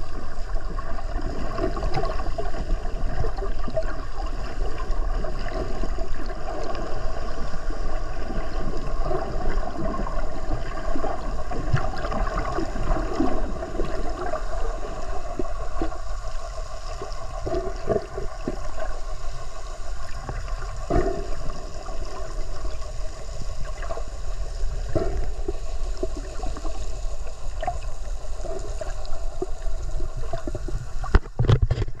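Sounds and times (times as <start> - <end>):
faint hum: 0.0 - 32.0
underwater water noise: 0.0 - 32.0
clicks and gurgles: 28.8 - 32.0.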